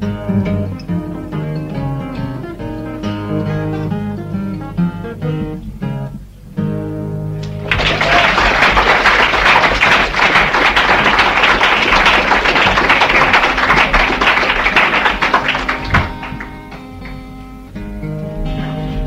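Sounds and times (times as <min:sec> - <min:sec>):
quiet acoustic guitar notes: 0:00.0 - 0:07.8, 0:13.2 - 0:19.0
audience applauding: 0:07.4 - 0:17.6.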